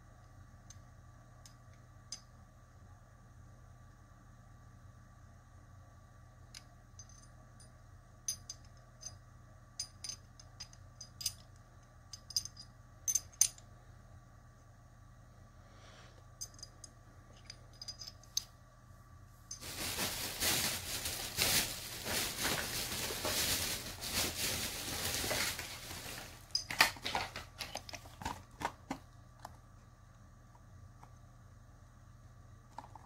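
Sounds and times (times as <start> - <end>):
packaging rustling and scraping: 19.6 - 29.0.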